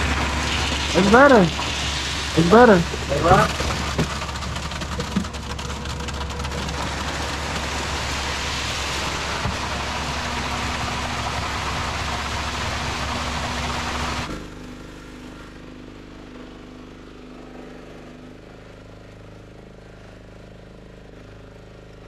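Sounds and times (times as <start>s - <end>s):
noisy rush: 0.0s - 14.4s
engine running: 0.0s - 22.0s.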